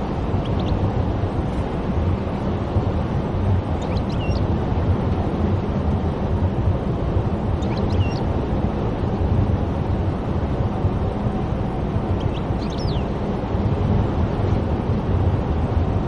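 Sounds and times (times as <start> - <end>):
car road and engine rumble: 0.0 - 16.0.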